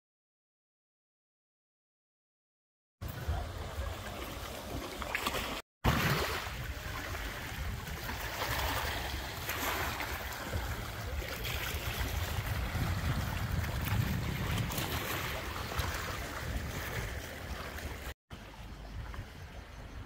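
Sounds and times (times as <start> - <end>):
waves washing over pebbles: 3.0 - 18.1
wind buffeting microphone: 5.9 - 20.0.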